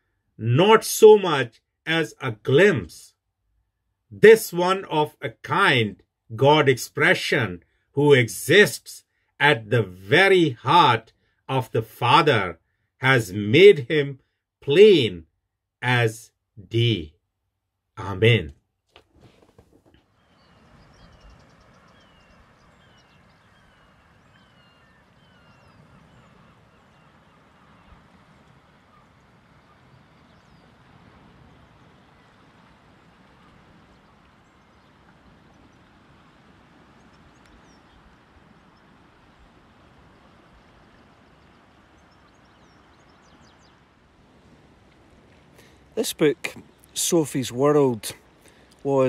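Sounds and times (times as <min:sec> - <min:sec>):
low steady hiss: 0:00.0 - 0:03.2, 0:04.1 - 0:15.2, 0:20.2 - 0:49.0
birds calling: 0:19.9 - 0:31.1, 0:33.3 - 0:39.4, 0:40.5 - 0:44.3, 0:45.2 - 0:49.0.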